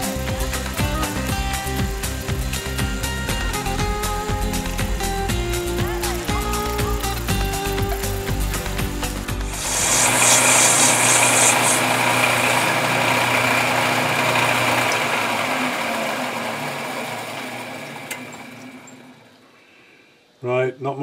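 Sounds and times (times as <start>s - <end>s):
high cutting noise: 0.0s - 16.5s
metal lathe running: 0.0s - 19.4s.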